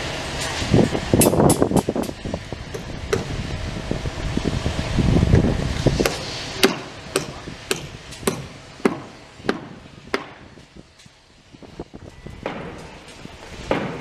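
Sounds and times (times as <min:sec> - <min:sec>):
low machinery rumble: 0:00.0 - 0:14.0
hammer strikes on metal: 0:02.7 - 0:03.3, 0:06.0 - 0:10.4, 0:12.4 - 0:12.9, 0:13.7 - 0:14.0.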